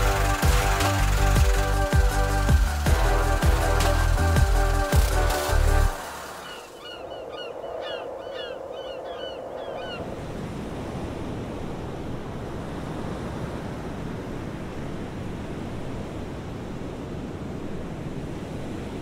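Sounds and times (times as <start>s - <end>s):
waves rushing: 0.0s - 19.0s
wind: 0.0s - 19.0s
bird calling: 6.3s - 10.0s.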